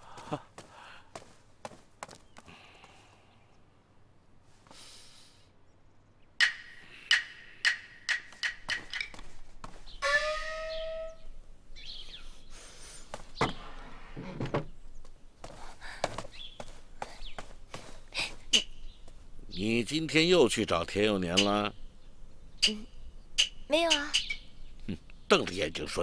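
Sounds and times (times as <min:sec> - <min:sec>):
sharp wooden clacks: 0:06.4 - 0:10.6.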